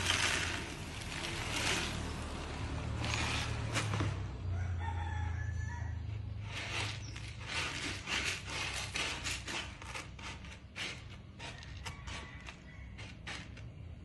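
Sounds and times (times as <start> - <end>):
cat litter pellets rustling: 0.0 - 4.2, 6.5 - 11.7
rooster crowing: 4.4 - 6.3, 11.5 - 13.6.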